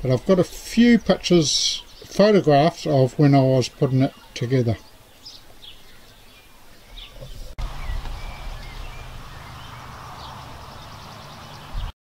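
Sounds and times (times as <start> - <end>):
small birds chirping: 0.0 - 12.0
steady low rumble: 7.2 - 11.9.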